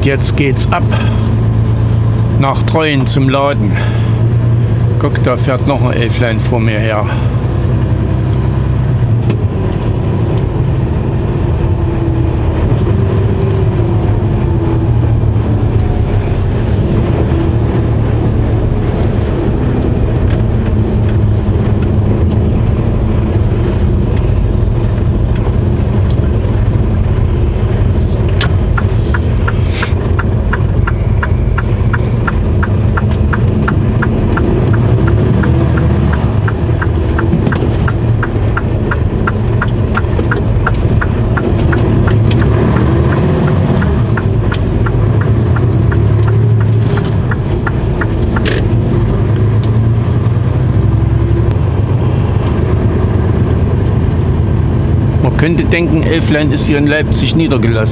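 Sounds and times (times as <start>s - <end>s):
diesel engine running: 0.0s - 57.9s
turn signal ticking: 0.0s - 57.9s.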